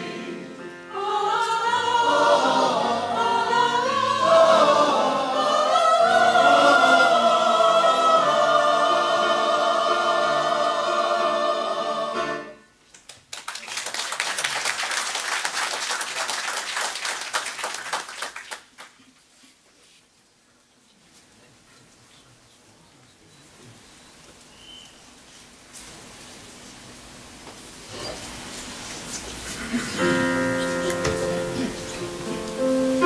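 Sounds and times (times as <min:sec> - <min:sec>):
mixed choir singing: 0:00.0 - 0:12.7
audience applause: 0:12.9 - 0:19.1.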